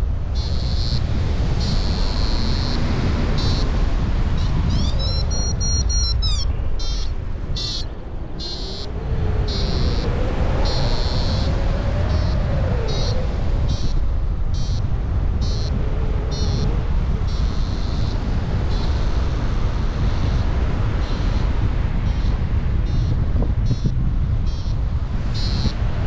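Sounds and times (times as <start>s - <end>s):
wind rumble on microphone: 0.0s - 26.0s
variometer beeping: 3.4s - 8.8s, 15.4s - 20.4s, 21.0s - 24.8s, 25.4s - 25.8s.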